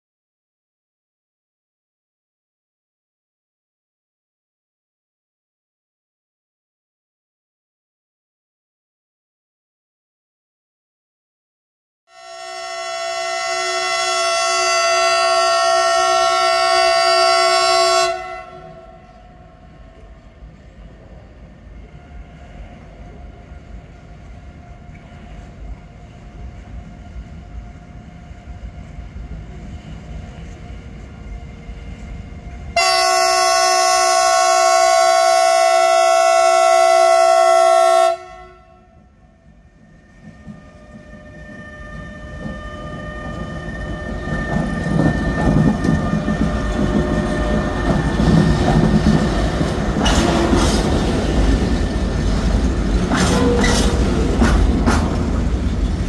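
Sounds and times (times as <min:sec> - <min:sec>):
locomotive horn blasts: 0:12.1 - 0:19.3, 0:32.8 - 0:39.1, 0:50.0 - 0:51.1, 0:53.1 - 0:54.3
freight train rumbling past: 0:12.1 - 0:56.0.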